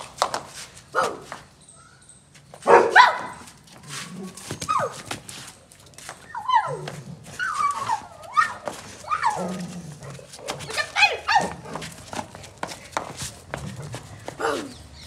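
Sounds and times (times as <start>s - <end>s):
dog barking: 0.9s - 1.3s, 2.6s - 3.4s
dog yelping: 6.3s - 9.8s, 10.7s - 11.8s.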